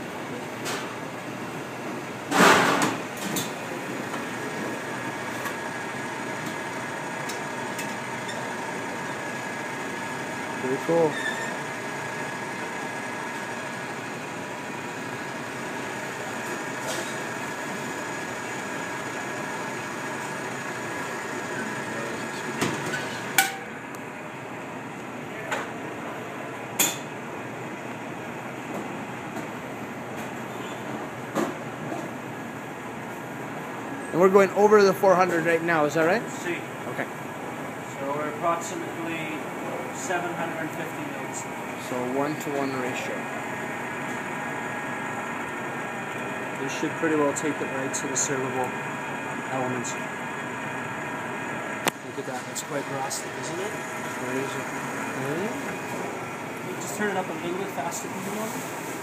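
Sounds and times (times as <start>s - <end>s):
steady running noise: 31.4s - 59.0s.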